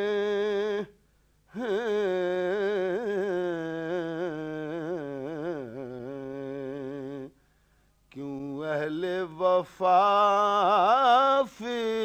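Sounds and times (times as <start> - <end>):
man singing ornamented phrases: 0.0 - 7.4, 8.1 - 12.0.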